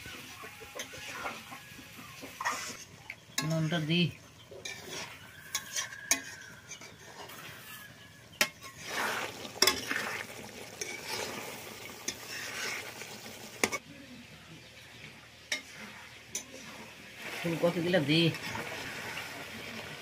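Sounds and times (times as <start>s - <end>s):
food sizzling: 0.0s - 20.0s
metal spatula scraping pan: 0.7s - 3.9s, 4.5s - 13.8s, 15.5s - 19.7s
water poured into pan: 8.7s - 13.8s, 15.6s - 20.0s.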